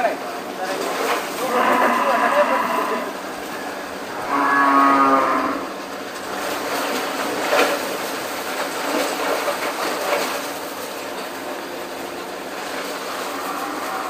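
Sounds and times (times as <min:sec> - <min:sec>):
cow mooing: 0:01.4 - 0:05.8, 0:13.2 - 0:14.0.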